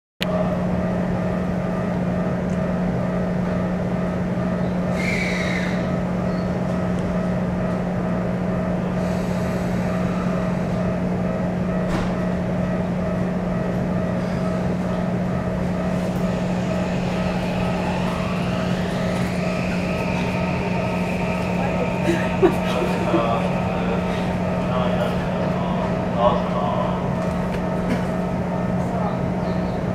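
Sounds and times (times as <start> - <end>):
electric train hum: 0.2 - 29.9
rising tone: 15.6 - 27.7.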